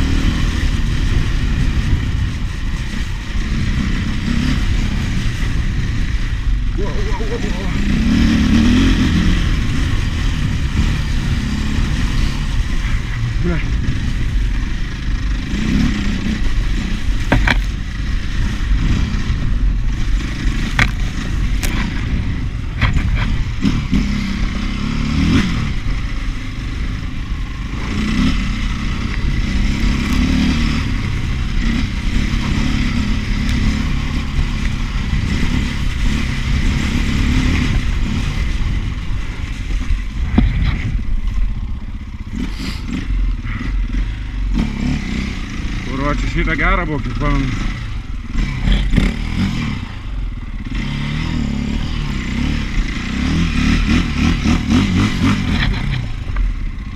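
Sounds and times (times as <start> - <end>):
motorbike engine revving: 0.0 - 56.9
bike knocking and rattling: 15.5 - 18.2, 18.8 - 24.1, 37.6 - 42.1.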